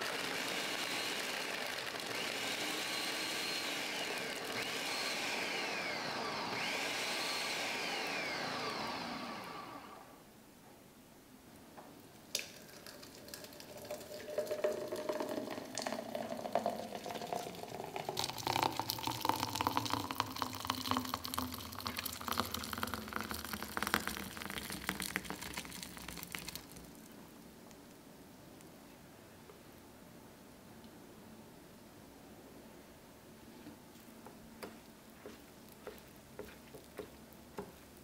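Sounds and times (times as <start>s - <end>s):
thick shake pouring into glass: 12.5s - 26.8s.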